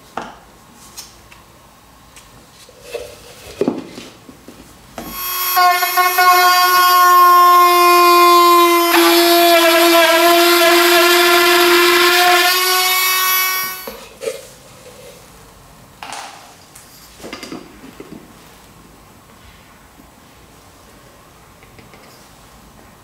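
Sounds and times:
electric mini drill whining: 5.0s - 14.0s.

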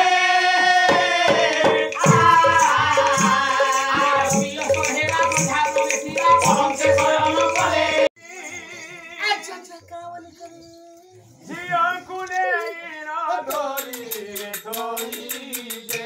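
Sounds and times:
barrel drum beating: 0.9s - 8.1s
jingling rattle percussion: 1.3s - 8.1s, 13.5s - 16.0s.

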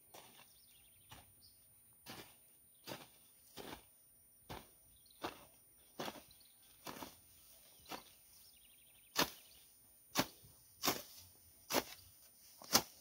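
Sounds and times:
hoe chopping into soil: 9.1s - 9.5s, 10.1s - 13.0s.

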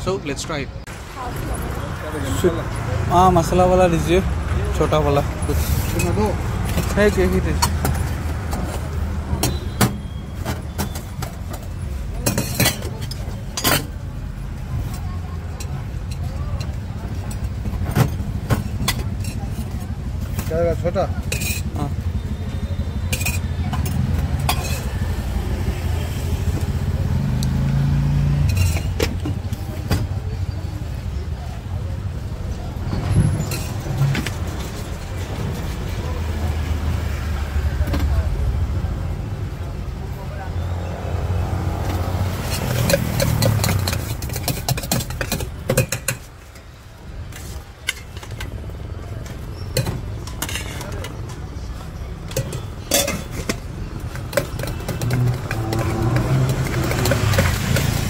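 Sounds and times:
road traffic rumble: 0.0s - 58.0s
vehicle engine passing: 23.9s - 28.9s, 54.1s - 58.0s
spoon clicking against jars: 42.5s - 46.2s
spoon clinking against steel tumbler: 42.5s - 46.3s, 52.3s - 58.0s.

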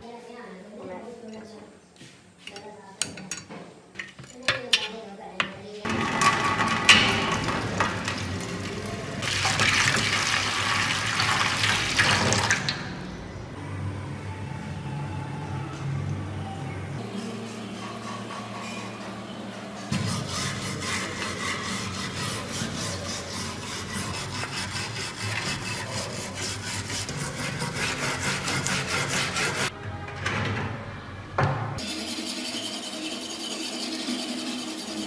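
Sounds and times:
brush scrubbing metal blade: 19.9s - 29.7s, 31.8s - 35.0s.

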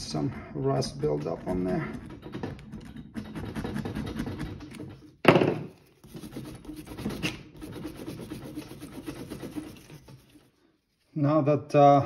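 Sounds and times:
screwdriver scraping rust: 0.7s - 5.2s, 5.8s - 10.5s.

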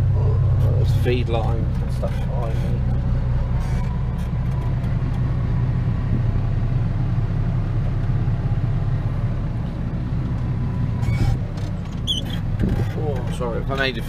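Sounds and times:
tractor engine running: 0.0s - 14.0s
rattles: 11.0s - 13.9s.

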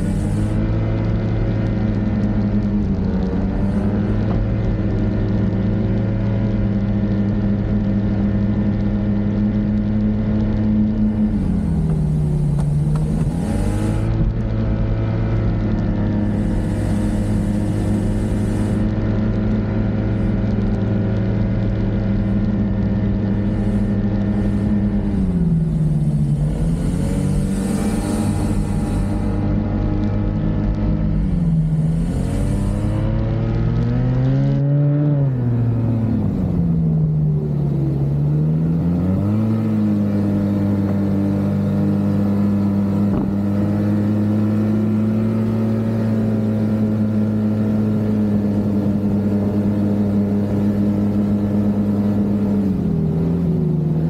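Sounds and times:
snowmobile engine running: 0.0s - 54.0s
hiss: 16.2s - 18.9s, 27.2s - 29.4s.

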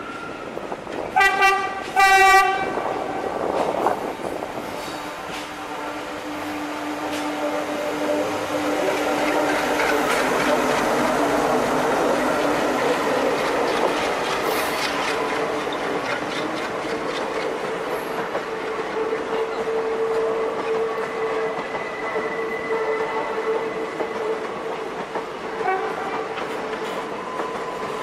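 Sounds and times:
diesel locomotive engine drone: 0.0s - 28.0s
train wheels clicking over rail joints: 6.4s - 28.0s.

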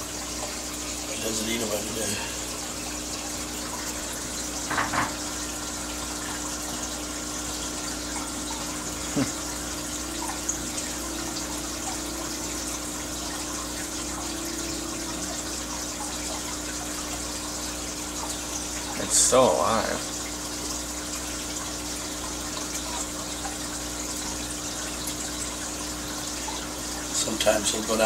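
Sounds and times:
aquarium filter water trickling: 0.0s - 28.0s
low pump hum: 0.0s - 28.0s.

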